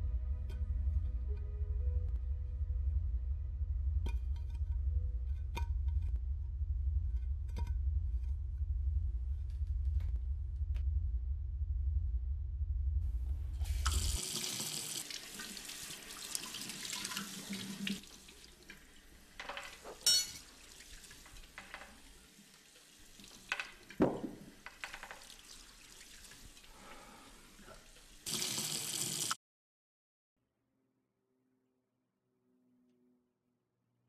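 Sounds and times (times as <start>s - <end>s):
kitchen faucet running into sink: 13.6s - 18.8s, 28.3s - 29.4s
thump: 24.0s - 24.5s.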